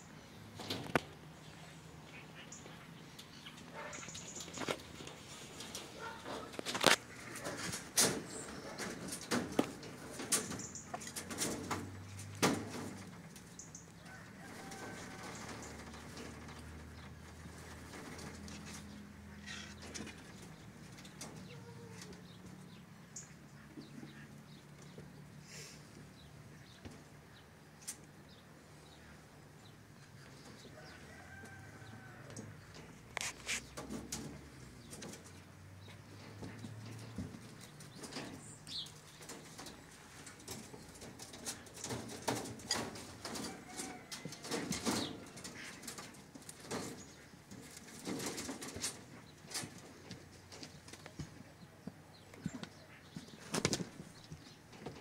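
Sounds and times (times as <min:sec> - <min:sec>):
faint birds calling: 0:00.0 - 0:55.0
rabbits rattling wire cage: 0:00.5 - 0:01.3, 0:03.2 - 0:24.8, 0:29.7 - 0:55.0
dry hay rustling and crackling: 0:02.6 - 0:19.7.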